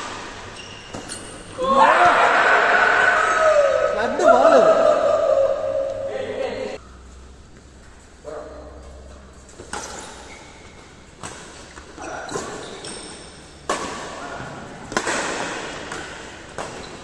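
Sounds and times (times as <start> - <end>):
racket hitting shuttlecock: 11.2 - 14.2, 14.8 - 17.0.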